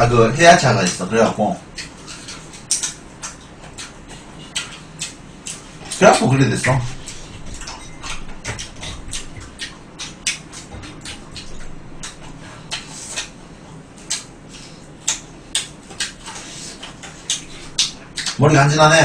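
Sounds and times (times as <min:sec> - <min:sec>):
crunching and chewing: 0:01.6 - 0:18.4
chopsticks and dishes clicking: 0:01.8 - 0:06.0.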